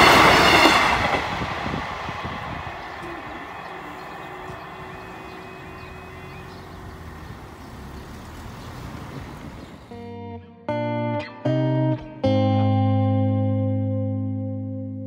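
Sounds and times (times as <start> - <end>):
rumble of passing traffic: 0.0 - 10.1
level crossing warning alarm: 2.5 - 9.5
guitar music: 9.9 - 15.0.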